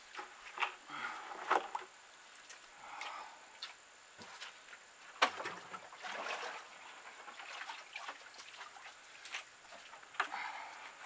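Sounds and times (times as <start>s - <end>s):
muddy water sloshing: 0.1s - 11.0s
water splash: 5.2s - 9.9s.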